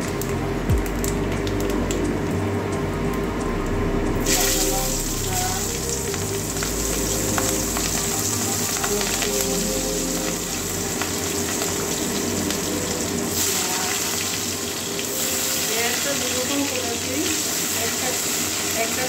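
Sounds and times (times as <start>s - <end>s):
food sizzling in hot oil: 4.2s - 19.0s.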